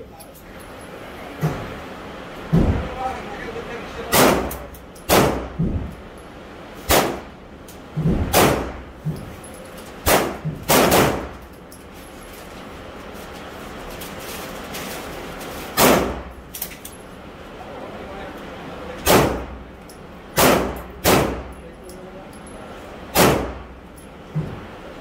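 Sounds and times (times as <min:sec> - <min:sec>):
handgun shots echoing indoors: 0:04.1 - 0:06.0, 0:06.8 - 0:07.3, 0:08.2 - 0:08.8, 0:10.0 - 0:11.5, 0:15.7 - 0:16.8, 0:19.0 - 0:19.6, 0:20.3 - 0:21.6, 0:23.1 - 0:23.7.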